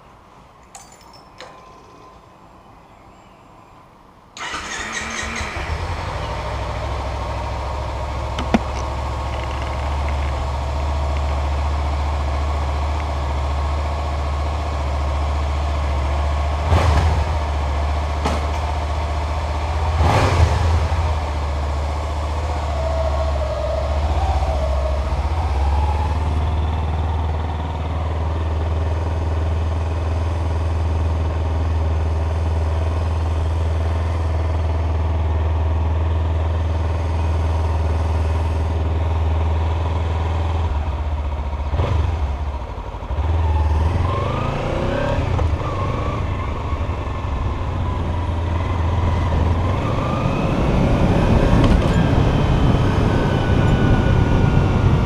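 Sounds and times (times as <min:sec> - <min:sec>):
motorcycle engine idling: 0:04.4 - 0:16.5.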